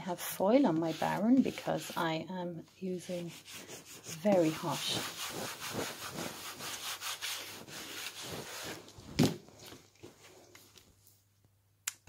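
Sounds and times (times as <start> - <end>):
baren rubbing paper: 0.2 - 2.2, 3.0 - 8.9.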